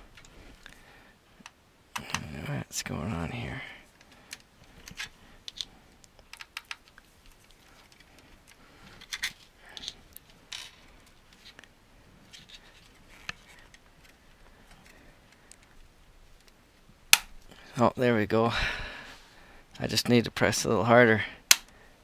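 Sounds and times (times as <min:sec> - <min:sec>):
clicks and taps of handled electronics: 0:01.4 - 0:02.3, 0:04.0 - 0:10.3, 0:21.5 - 0:21.8.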